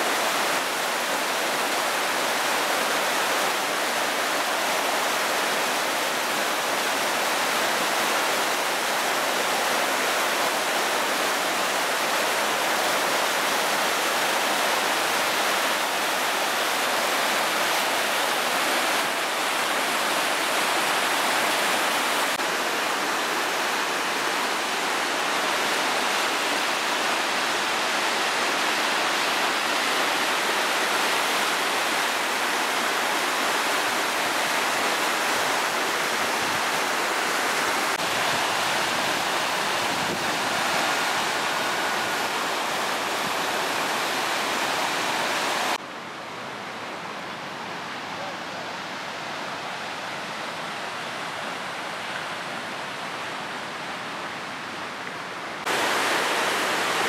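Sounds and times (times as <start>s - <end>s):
river rushing over rocks: 0.0s - 57.0s.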